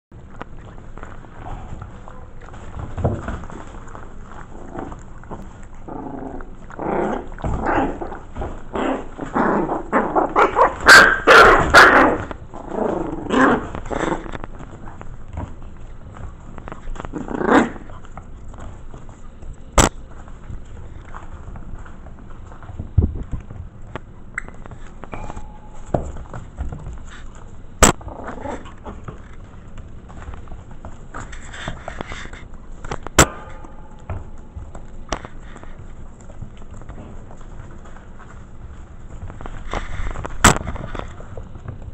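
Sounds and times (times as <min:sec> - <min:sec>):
puppies scuffling against camera: 0:00.2 - 0:41.9
puppies barking and yipping: 0:09.0 - 0:12.4.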